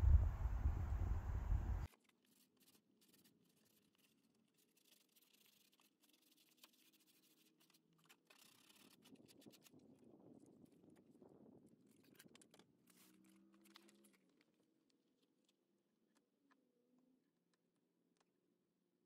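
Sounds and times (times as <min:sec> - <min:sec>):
sandpaper scratching on plastic: 0:02.2 - 0:09.8.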